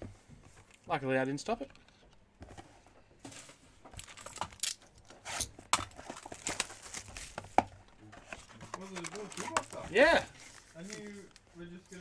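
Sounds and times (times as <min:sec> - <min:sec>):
card packaging crinkling: 0:05.8 - 0:07.6, 0:08.2 - 0:11.4.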